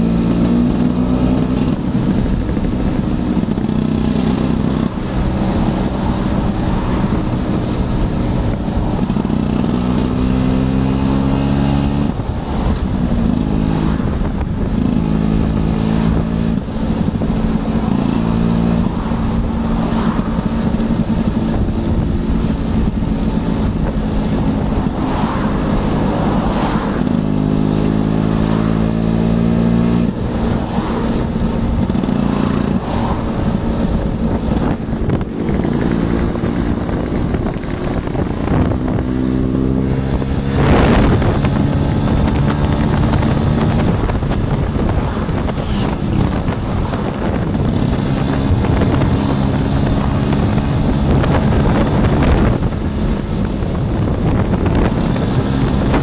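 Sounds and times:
motor scooter engine revving: 0.0 - 56.0
loud whoosh: 0.9 - 52.9.

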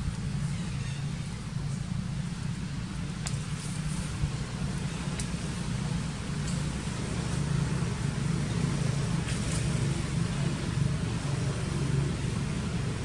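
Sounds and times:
low outdoor drone: 0.0 - 13.0
faint high ticks: 5.1 - 5.4.

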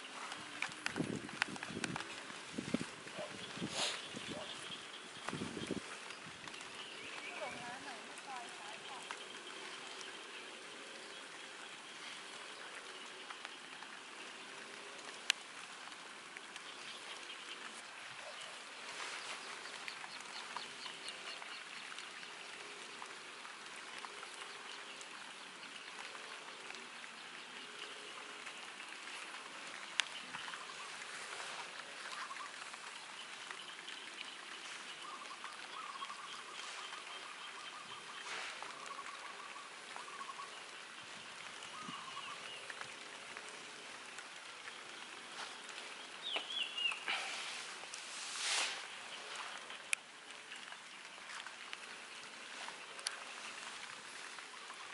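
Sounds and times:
light rain on foliage: 0.0 - 54.9
faint bird calls: 29.2 - 43.7.

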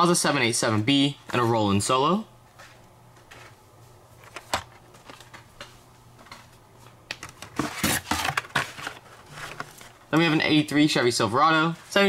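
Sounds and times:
plastic packaging crinkling and rattling: 7.1 - 10.4.

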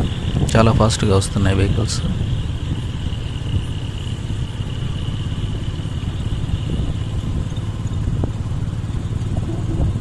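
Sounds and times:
engine and road rumble: 0.0 - 10.0.

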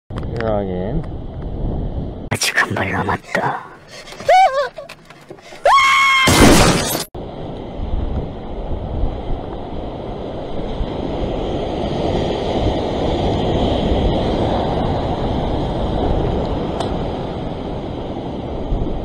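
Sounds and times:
wind on microphone: 0.1 - 2.3, 7.2 - 19.0.

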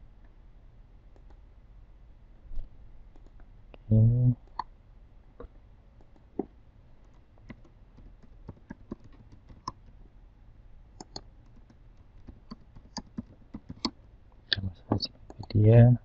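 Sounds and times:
computer keyboard typing: 7.0 - 10.0, 11.0 - 14.0, 15.2 - 15.6.

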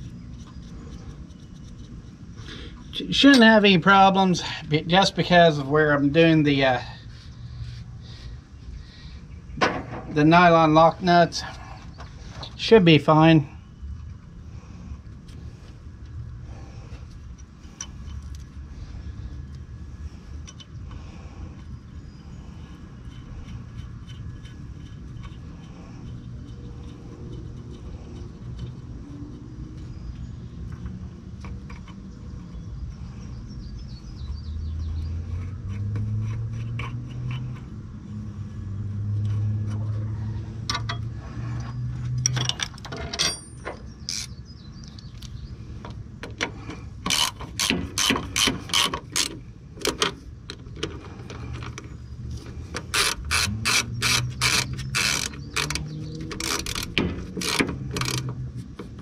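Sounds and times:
ratchet wrench clicking: 44.0 - 44.4, 47.0 - 50.1, 52.8 - 58.4.

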